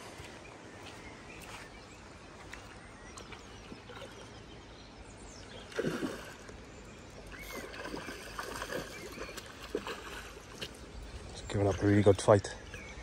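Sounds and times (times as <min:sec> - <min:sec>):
lakeside background: 0:00.0 - 0:13.0
fish thrashing splash: 0:05.7 - 0:06.5, 0:07.4 - 0:10.8.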